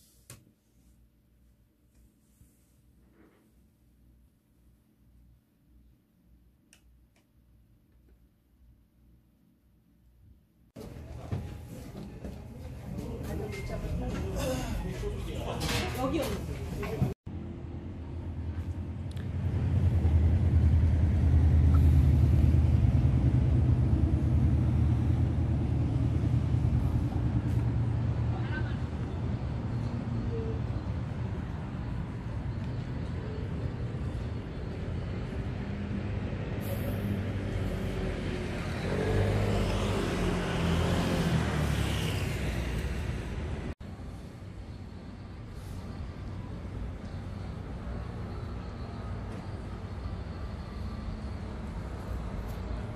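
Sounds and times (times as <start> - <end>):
vehicle engine rumbling: 10.8 - 52.9.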